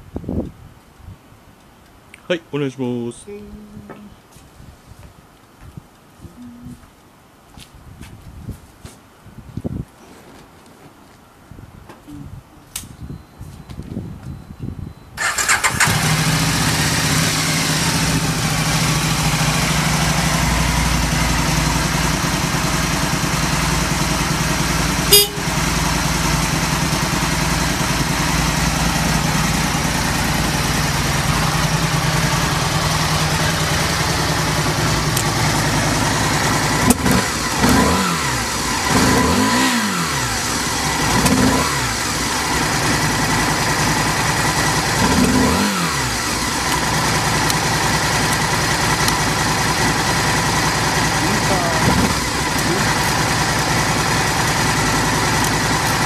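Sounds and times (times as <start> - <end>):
motorcycle engine idling and revving: 15.2 - 56.0.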